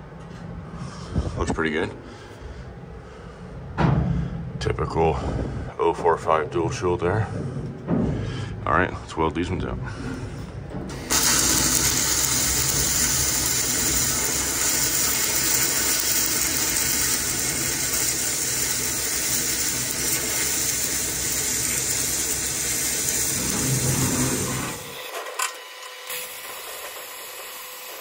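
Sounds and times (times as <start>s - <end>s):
welding arc sizzling: 10.9s - 28.0s.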